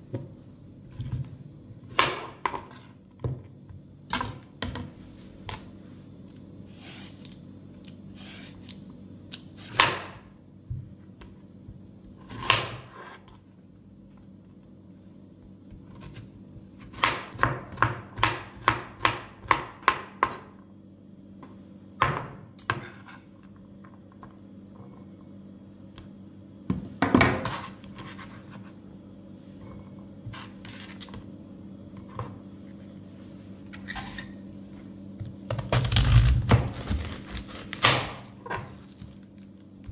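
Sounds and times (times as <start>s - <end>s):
low steady hum: 0.0s - 39.9s
knife chopping on cutting board: 1.9s - 2.9s, 9.6s - 10.2s, 12.2s - 13.2s, 16.8s - 20.5s
knife scraping cutting board: 6.7s - 7.3s, 8.2s - 8.8s, 12.2s - 13.4s, 22.8s - 23.4s, 27.4s - 28.8s, 29.6s - 31.2s.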